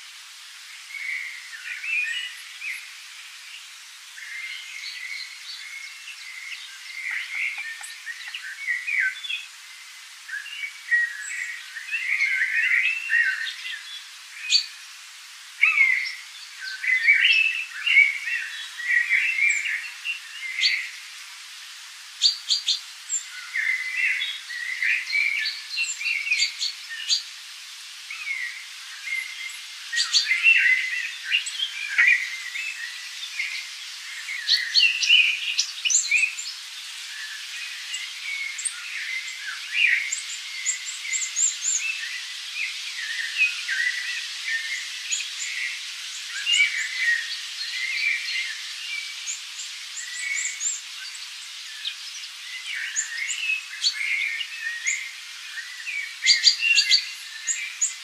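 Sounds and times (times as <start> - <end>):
faint steady hiss: 0.0 - 58.0
birds chirping and singing: 4.2 - 9.5, 10.3 - 14.8, 15.6 - 20.9, 28.1 - 36.6, 37.2 - 58.0.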